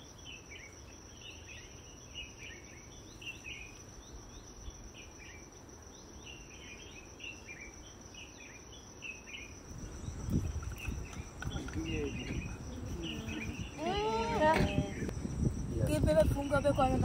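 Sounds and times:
high insect trill: 0.0s - 17.0s
falling bird chirps: 6.1s - 15.1s.

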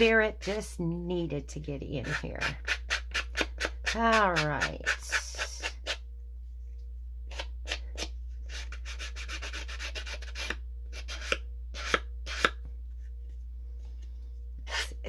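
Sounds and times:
file rubbing on paper card: 2.0s - 4.0s, 4.6s - 6.0s, 7.3s - 12.6s.

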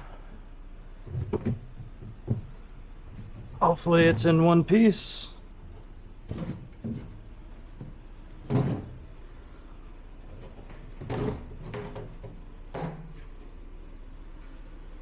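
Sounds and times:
wooden knocks and scrapes: 1.0s - 4.4s, 5.7s - 9.0s.

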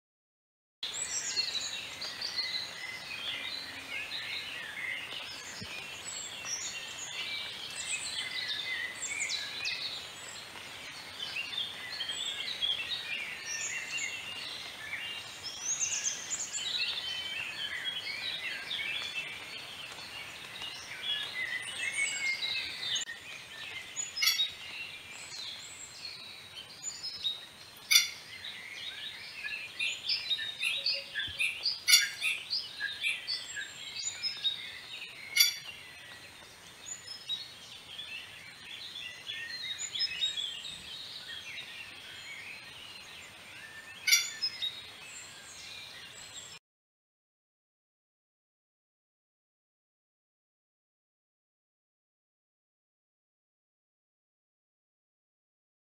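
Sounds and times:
sharp loud bird calls: 0.8s - 25.9s, 26.7s - 37.6s, 41.3s - 45.0s
chorus of birds chirping: 0.8s - 46.6s.

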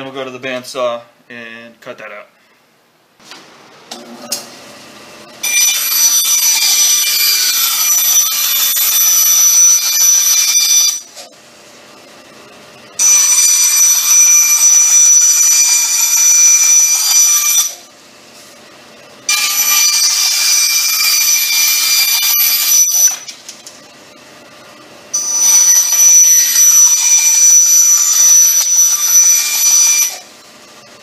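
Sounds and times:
bandsaw high-pitched whine: 5.2s - 11.4s, 12.9s - 18.5s, 19.2s - 23.9s, 25.1s - 31.0s.

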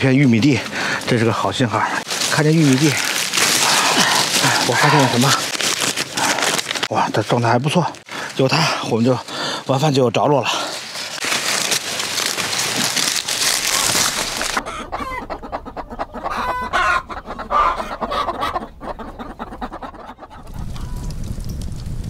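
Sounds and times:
loud dry rustling: 0.2s - 14.6s
chickens clucking: 14.3s - 21.0s.

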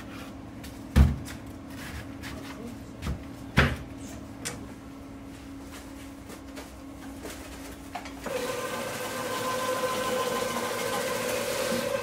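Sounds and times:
steady low hum: 0.0s - 8.2s
vegetable cutter motor whine: 8.2s - 12.0s.

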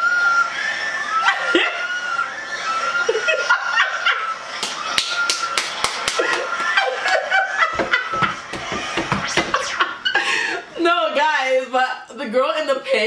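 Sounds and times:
high held scream: 0.0s - 5.7s
woman laughing: 1.2s - 2.0s, 3.0s - 4.4s, 6.1s - 10.8s
hands clapping: 4.6s - 9.6s.

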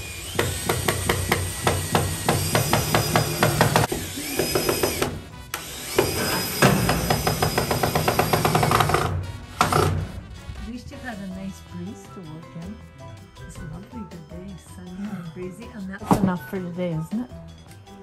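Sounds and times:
cordless drill driving screws: 0.0s - 9.1s.

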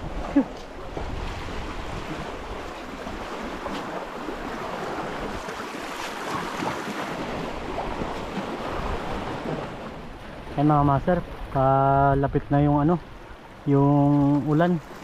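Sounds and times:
wind on microphone: 0.0s - 13.4s
sea waves splashing on rocks: 0.6s - 10.6s.

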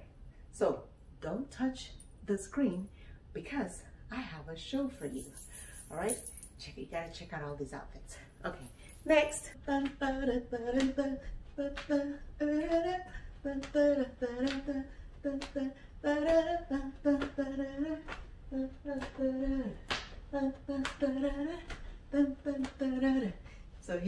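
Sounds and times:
woman humming a tune: 9.7s - 23.4s.

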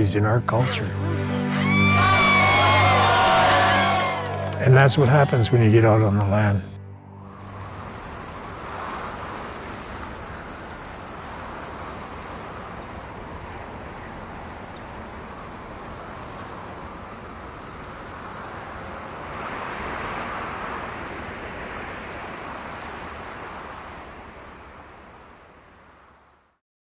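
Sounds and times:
rushing wind: 7.2s - 25.3s.

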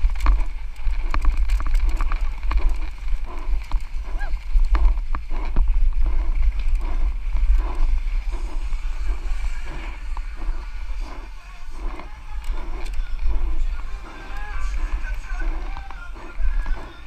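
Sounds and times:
bike knocks and rattles: 0.0s - 8.4s
wind buffeting microphone: 0.0s - 17.0s.

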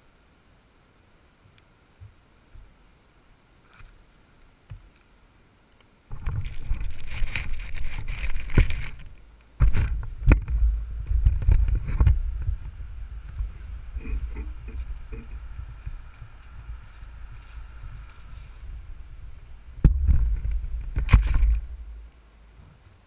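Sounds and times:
propwash wind buffeting microphone: 6.1s - 22.6s
drone propellers spinning: 9.6s - 22.0s
low thumps: 9.6s - 22.1s.

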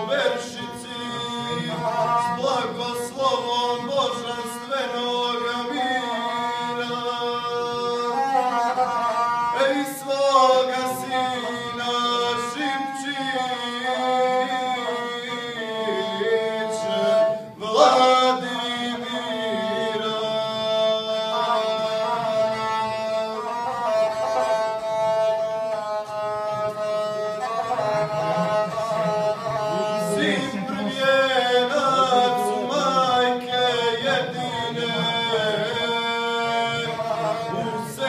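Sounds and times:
bowed single-string fiddle: 0.0s - 38.0s
man chanting epic song: 29.0s - 38.0s.

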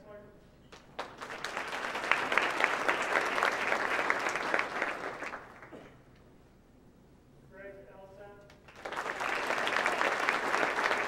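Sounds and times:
audience applauding: 0.7s - 5.8s, 8.7s - 11.0s.

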